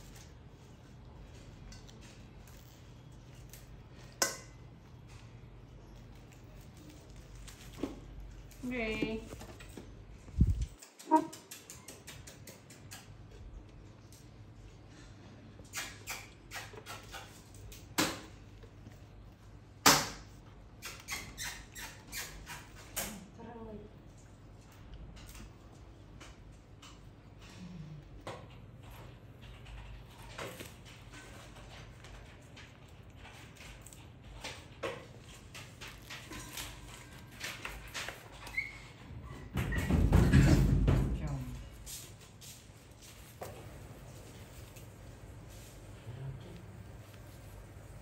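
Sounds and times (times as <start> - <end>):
leafy greens rustling: 0.0 - 10.8, 41.3 - 48.0.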